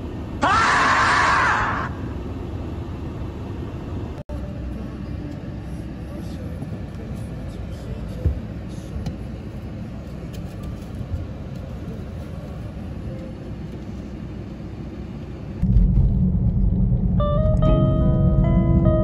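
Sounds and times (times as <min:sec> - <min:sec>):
car driving rumble: 0:00.0 - 0:19.0
car cabin rumble: 0:07.0 - 0:13.3
plucked guitar music: 0:17.2 - 0:19.0.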